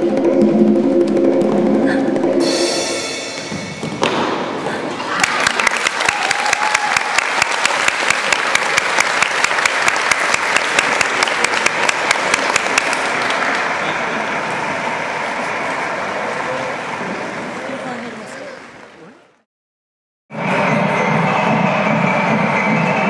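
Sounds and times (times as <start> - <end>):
audience applauding: 4.9 - 19.0.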